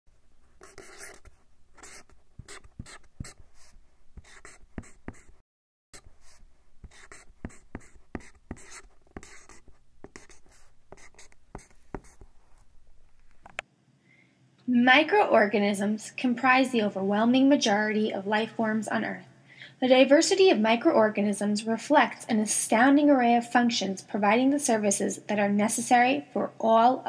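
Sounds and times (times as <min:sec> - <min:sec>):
marker squeaking on whiteboard: 0:00.6 - 0:05.4, 0:06.0 - 0:13.6.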